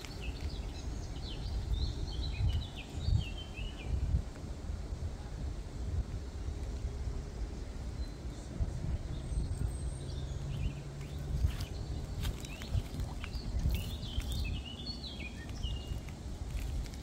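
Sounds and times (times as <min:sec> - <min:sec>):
wind rumble on microphone: 0:00.0 - 0:17.0
small bird chirping: 0:09.1 - 0:17.0.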